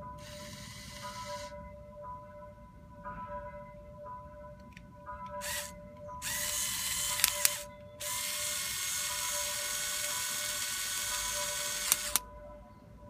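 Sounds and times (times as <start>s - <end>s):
electric motor gear whir: 0.2s - 1.5s, 5.4s - 12.2s
sharp clicks: 4.6s - 12.2s.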